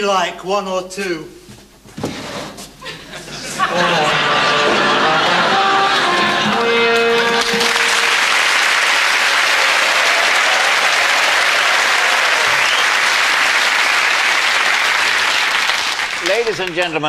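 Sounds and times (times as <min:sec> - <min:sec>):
studio audience applauding: 0:03.7 - 0:17.0.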